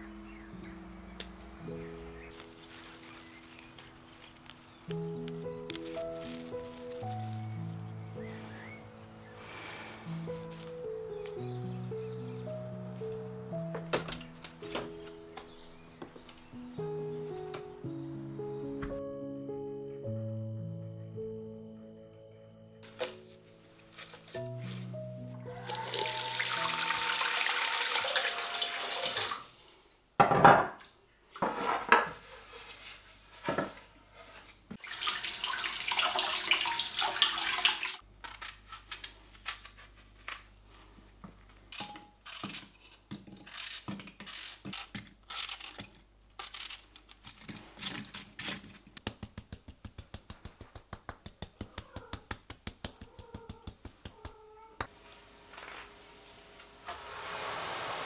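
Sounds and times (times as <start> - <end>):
knife cutting an apple: 38.2 - 40.5, 41.8 - 49.1.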